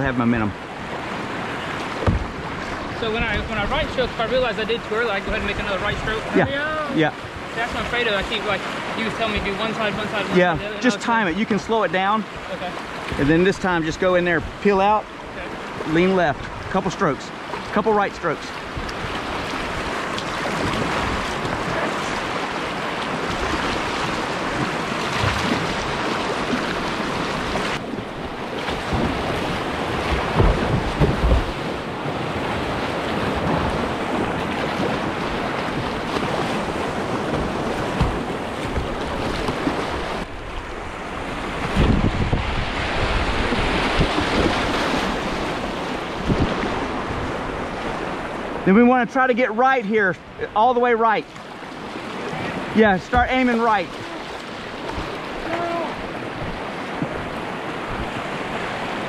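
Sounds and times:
whitewater rushing: 0:00.0 - 0:59.0
low buffeting thuds: 0:01.9 - 0:03.6, 0:27.5 - 0:44.7, 0:53.0 - 0:53.5
wind noise on microphone: 0:18.6 - 0:22.4, 0:23.1 - 0:48.6, 0:54.8 - 0:59.0.

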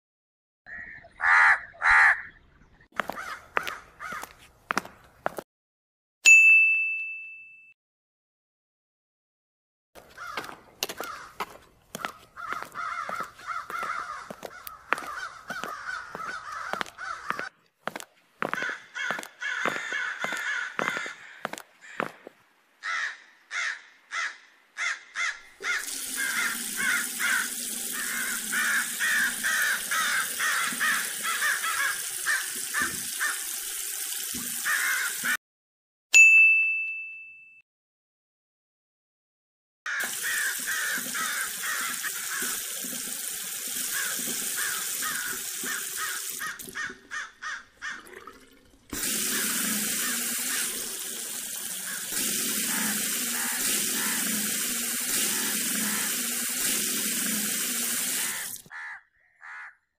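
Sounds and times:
crows cawing: 0:00.7 - 0:02.3, 0:03.0 - 0:04.4, 0:10.0 - 0:17.5, 0:18.4 - 0:33.5, 0:34.6 - 0:35.4, 0:39.9 - 0:42.6, 0:43.9 - 0:48.2, 0:49.4 - 0:50.8, 0:51.8 - 0:54.4, 0:55.2 - 0:56.3, 0:58.2 - 0:59.9
bright ding chime: 0:06.2 - 0:07.8, 0:36.2 - 0:37.6
water splashing on feet and tiles: 0:10.1 - 0:22.2, 0:25.6 - 0:35.4, 0:40.1 - 0:58.7.

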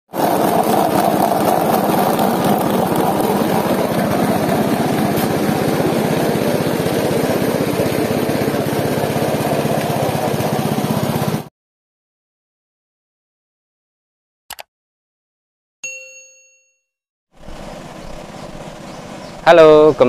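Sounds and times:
poultry plucking machine running: 0:00.1 - 0:11.5, 0:17.4 - 0:20.0.

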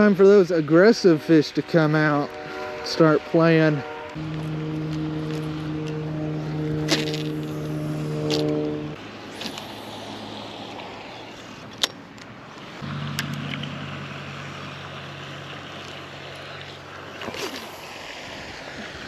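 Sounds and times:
steady low hum: 0:04.2 - 0:09.0.

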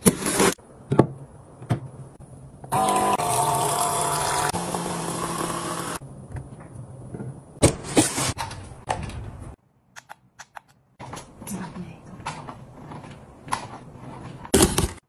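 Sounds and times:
water dispenser pump whine: 0:02.6 - 0:06.0.

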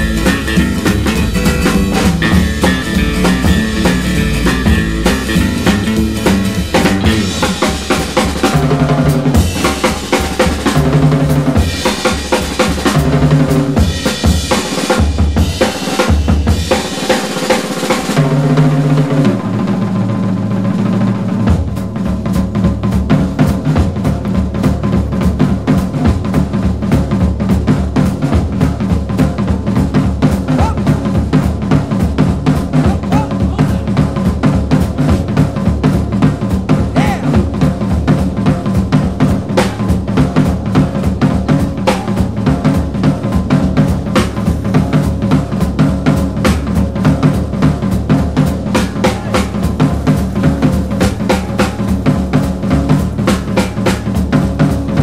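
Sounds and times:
bass line: 0:00.0 - 0:12.0, 0:28.4 - 0:53.4
drum-kit beat: 0:00.0 - 0:55.0.

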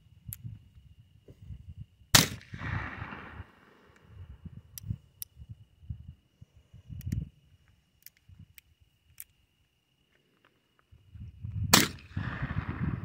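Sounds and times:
revolver gunshot with echo: 0:02.2 - 0:03.5, 0:11.7 - 0:13.0.

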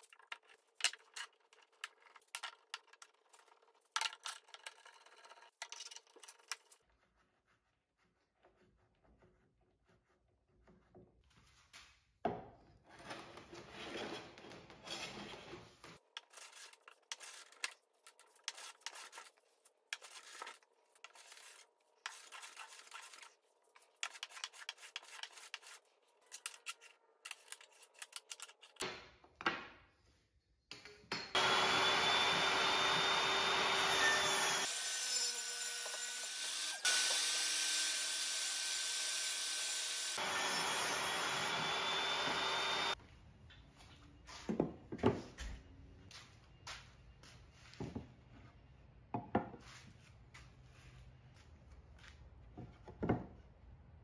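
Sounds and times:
table saw cutting wood: 0:31.4 - 0:43.0.

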